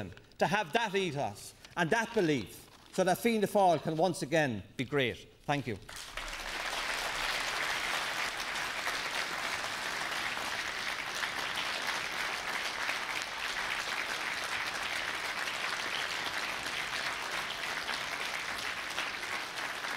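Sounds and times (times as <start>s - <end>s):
audience applause: 5.9s - 19.9s.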